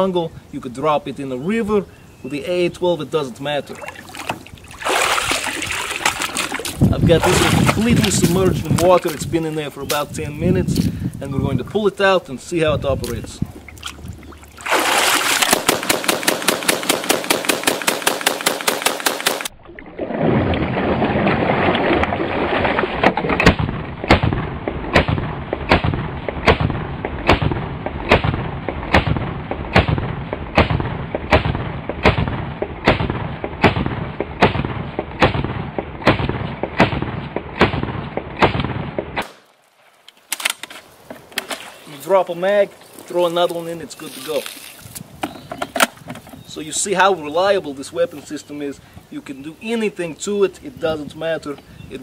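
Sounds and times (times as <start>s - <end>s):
automatic shotgun firing: 15.3s - 19.5s, 23.4s - 39.4s.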